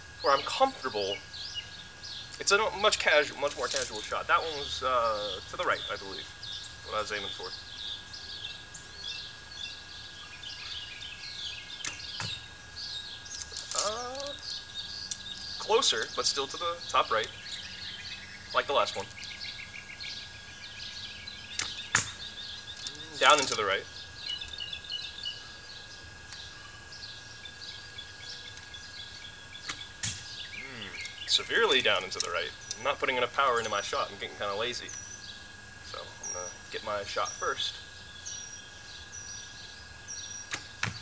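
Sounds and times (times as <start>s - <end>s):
birds chirping: 0.0s - 41.0s
arrow thudding into target: 21.6s - 22.2s, 29.7s - 30.3s
bowstring snapping: 29.6s - 30.3s.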